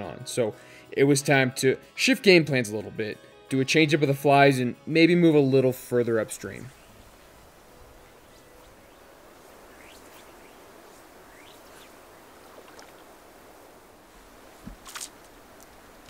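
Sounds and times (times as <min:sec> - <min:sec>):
soft steady hiss: 0:05.9 - 0:16.0
rising bird chirps: 0:06.7 - 0:13.1.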